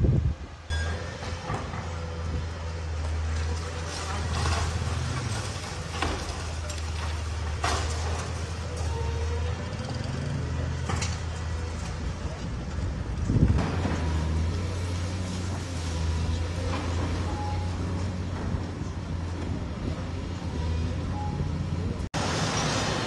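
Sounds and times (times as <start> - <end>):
diesel excavator engine running: 0.0 - 23.0.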